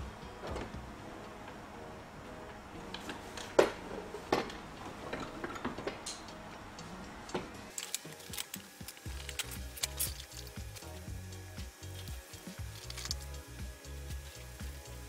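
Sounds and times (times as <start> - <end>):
metal tools clicking and clinking: 5.1 - 11.0, 11.9 - 13.4.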